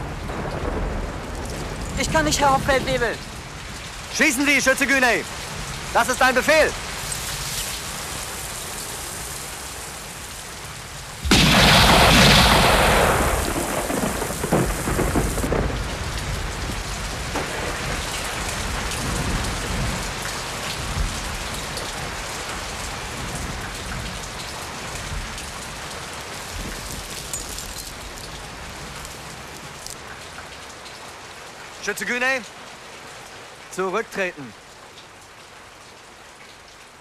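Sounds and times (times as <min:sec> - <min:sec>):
steady rain: 0:00.0 - 0:37.0
loud rumbling boom: 0:11.2 - 0:16.0.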